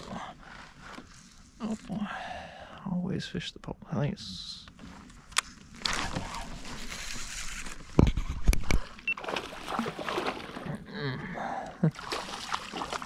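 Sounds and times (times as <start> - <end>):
water splashing and sloshing: 5.6 - 13.0.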